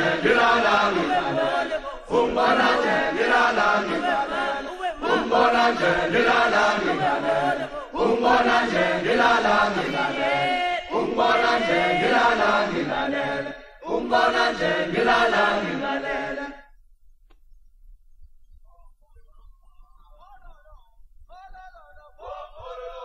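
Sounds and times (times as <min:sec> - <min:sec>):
group of voices chanting: 0:00.0 - 0:16.6.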